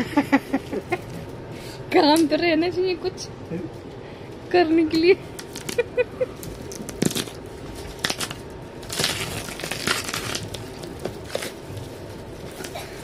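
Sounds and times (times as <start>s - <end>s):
plastic film peeled off suitcase: 6.8s - 12.8s.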